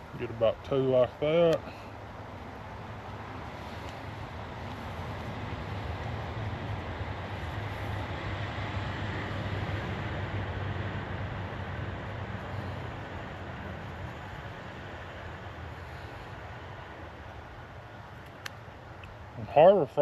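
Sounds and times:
distant traffic rumble: 0.0s - 20.0s.

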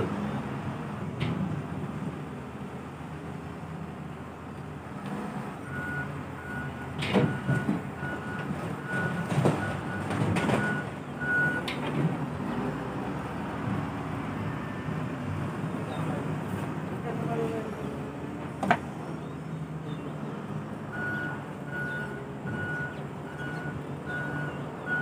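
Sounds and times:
diesel engine running: 0.0s - 25.0s
reversing alarm beeps: 5.7s - 11.6s, 20.9s - 25.0s
loud thuds and clatters: 7.0s - 10.8s.

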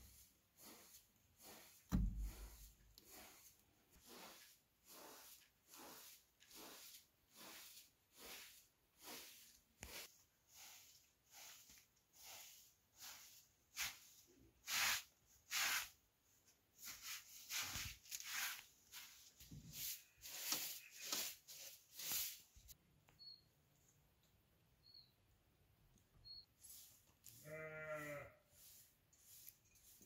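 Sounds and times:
broom sweeping carpet: 0.0s - 22.8s, 26.4s - 30.0s
faint high chirps: 23.1s - 23.6s, 24.7s - 25.4s, 26.0s - 26.6s.

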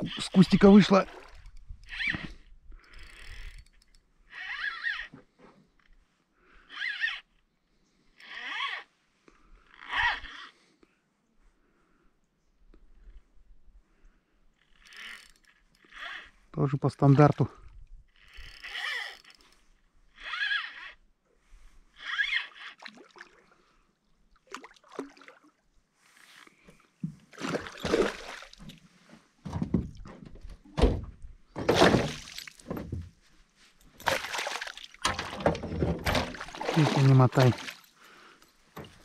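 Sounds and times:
water sloshing around boat: 0.0s - 2.3s, 22.2s - 39.0s.

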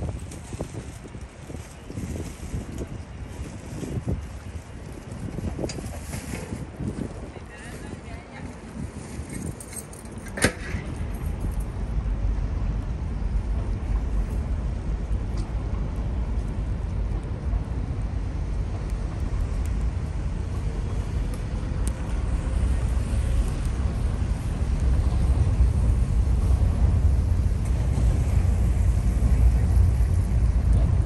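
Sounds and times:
traffic rumble: 0.0s - 31.0s
air noise: 8.8s - 31.0s.

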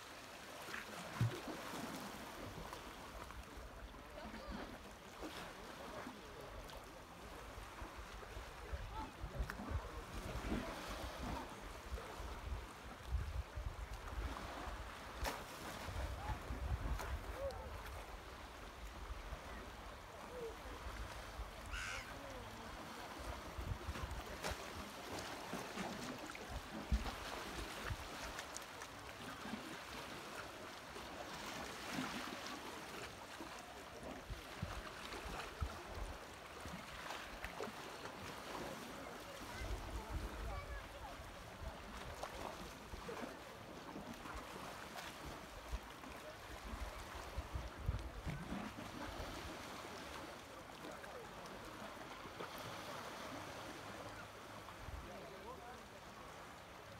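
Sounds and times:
sea lapping at shore: 0.0s - 56.9s
wind rumble on microphone: 11.2s - 14.6s, 15.9s - 17.9s.

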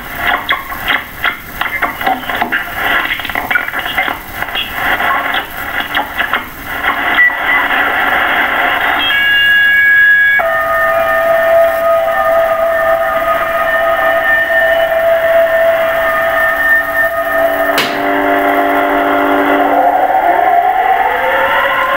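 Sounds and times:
air-raid siren over radio: 7.0s - 21.9s.

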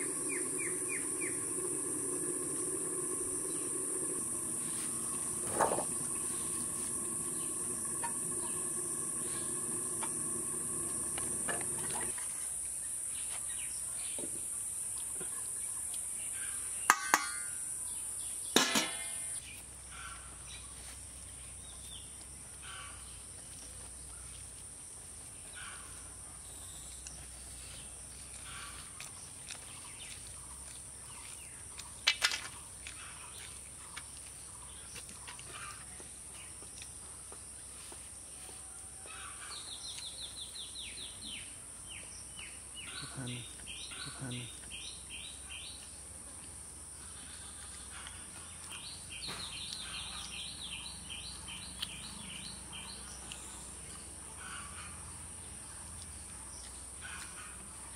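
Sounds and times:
faint bird chirps: 0.0s - 12.1s, 39.0s - 45.7s
high insect drone: 0.0s - 20.6s.

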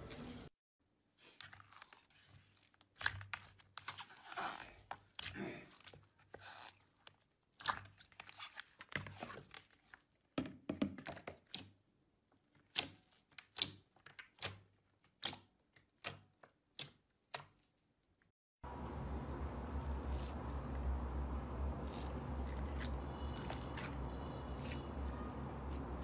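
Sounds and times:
slime squelching: 1.4s - 10.3s, 19.4s - 26.0s.

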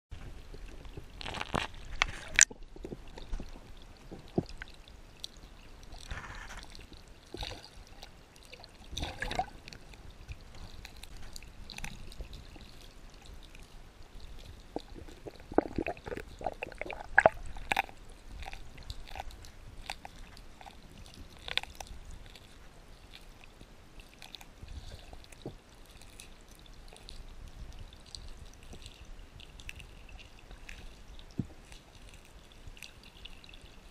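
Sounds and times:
underwater drips and gurgles: 0.2s - 33.9s
sharp underwater clicks: 0.5s - 7.8s.

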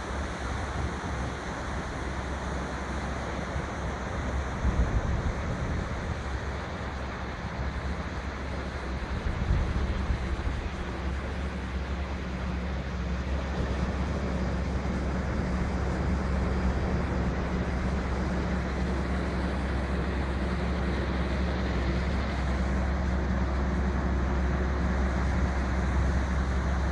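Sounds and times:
low drone: 0.0s - 26.9s
wind on microphone: 8.8s - 11.4s.

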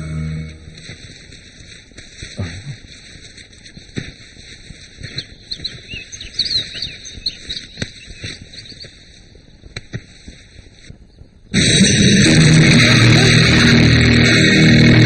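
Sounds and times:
birds chirping: 4.6s - 9.8s.

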